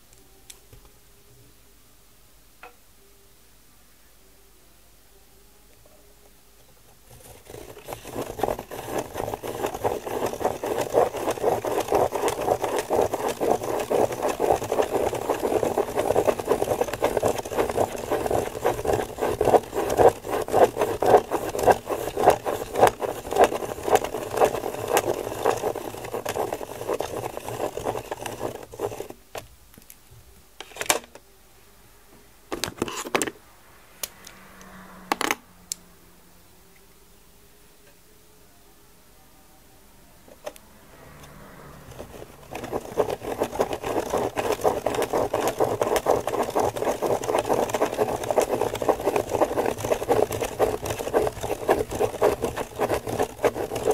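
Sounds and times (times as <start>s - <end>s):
pen scratching on paper: 7.1s - 29.2s, 41.9s - 53.9s.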